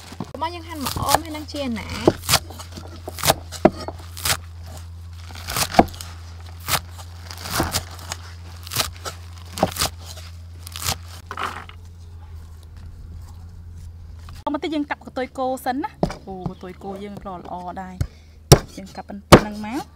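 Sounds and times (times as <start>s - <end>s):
cleaver chopping vegetable stems: 0.0s - 11.8s, 16.0s - 19.9s.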